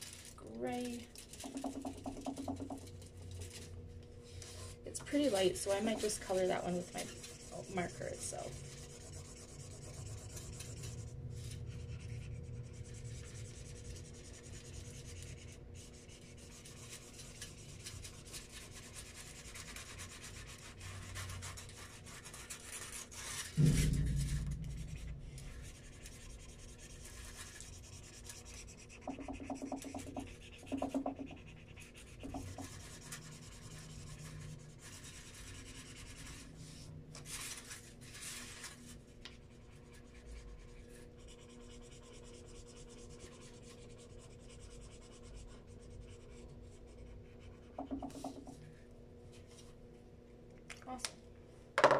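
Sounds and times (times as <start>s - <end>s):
marker rubbing on paper: 0.8s - 3.7s, 4.3s - 23.6s, 25.5s - 38.8s, 39.5s - 48.6s
thump: 23.3s - 26.9s.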